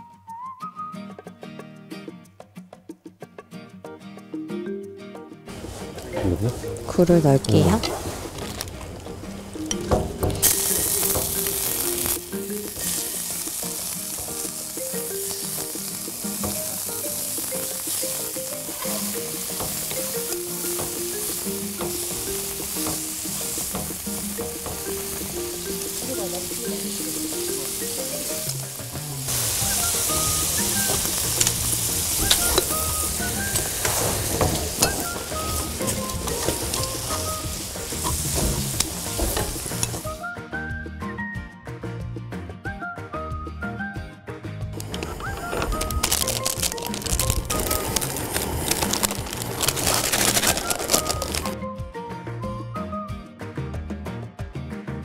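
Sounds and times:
food sizzling in a pan: 5.5s - 40.3s, 44.8s - 51.6s
chopsticks clicking against pan: 9.7s - 28.8s, 29.4s - 40.1s.

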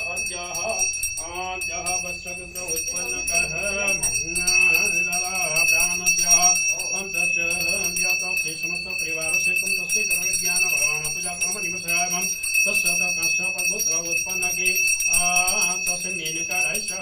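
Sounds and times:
hand bell ringing: 0.0s - 17.0s.

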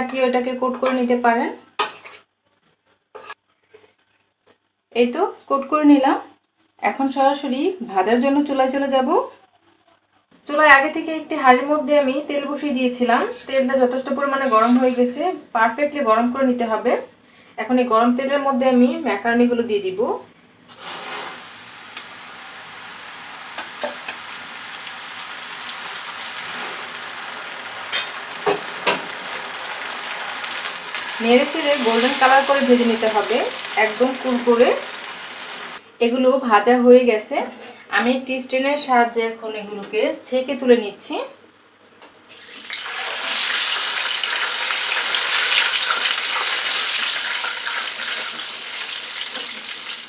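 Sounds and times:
food deep-frying in oil: 20.7s - 35.8s, 42.2s - 50.0s.

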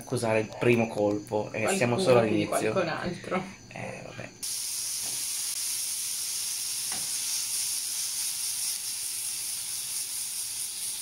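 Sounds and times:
vegetables sizzling in a frying pan: 4.4s - 11.0s.

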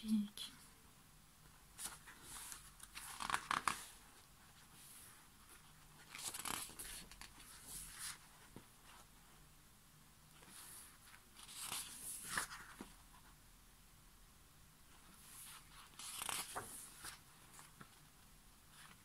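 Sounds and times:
album pages rustling: 1.7s - 4.0s, 5.5s - 8.8s, 10.4s - 13.0s, 15.1s - 18.0s.

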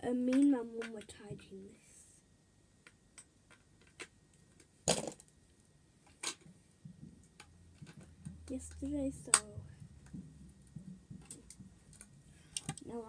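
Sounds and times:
clicks and knocks of objects moved: 6.1s - 13.0s.

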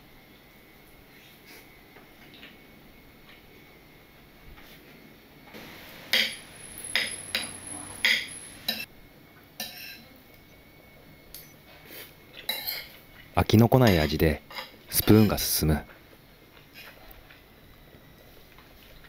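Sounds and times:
metal spoon clinking on ceramic plate: 6.2s - 8.9s.

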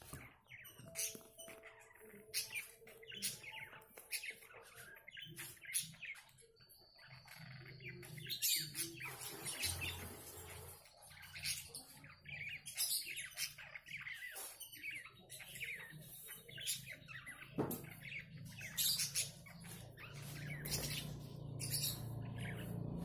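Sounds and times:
budgerigars chirping: 0.0s - 23.0s.

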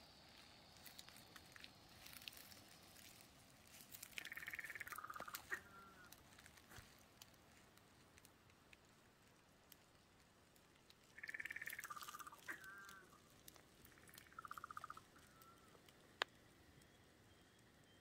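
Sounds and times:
frogs trilling: 0.3s - 7.0s, 11.0s - 16.2s.

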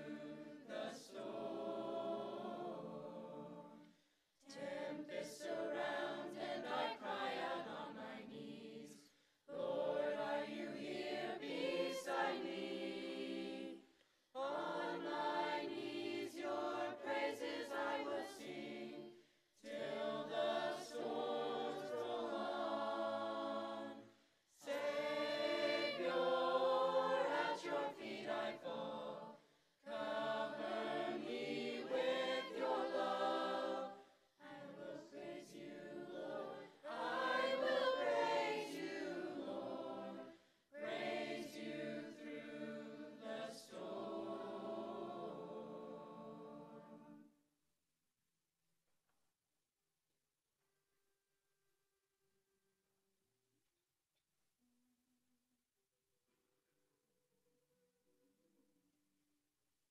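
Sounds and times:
choir singing a cappella: 0.0s - 47.4s.

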